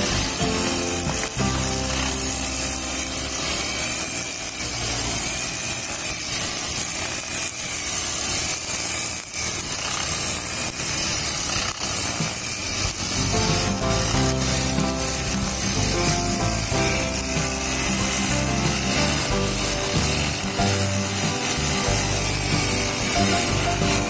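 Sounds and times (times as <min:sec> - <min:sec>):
brush cutter engine running: 0:00.0 - 0:24.0
trimmer line whipping through grass: 0:00.0 - 0:24.0.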